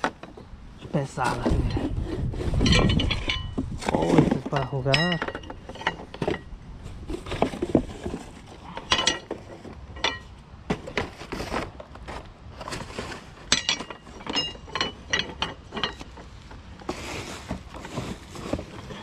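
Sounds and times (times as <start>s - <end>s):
metal rods clinking: 2.6s - 6.5s, 8.6s - 10.4s, 13.4s - 16.4s.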